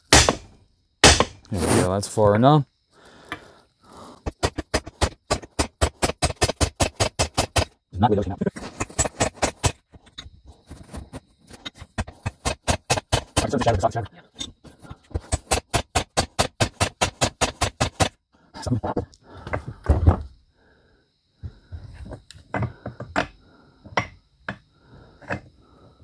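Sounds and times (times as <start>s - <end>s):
heavy metal part knocking on wood: 0.0s - 1.4s
hammer tapping on metal: 0.1s - 1.4s.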